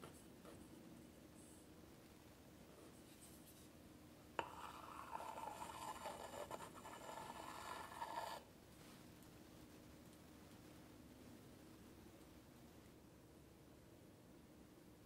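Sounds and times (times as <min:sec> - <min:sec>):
spatula scraping cream on cake: 0:04.4 - 0:08.5.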